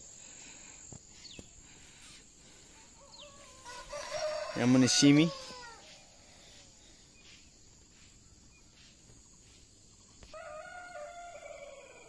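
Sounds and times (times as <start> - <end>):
distant rooster crowing: 2.7 - 6.3, 10.1 - 12.0.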